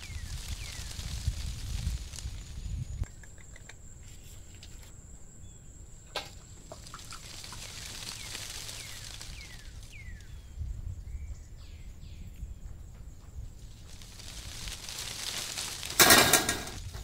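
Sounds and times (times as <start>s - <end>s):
bird chirping: 2.5s - 14.0s.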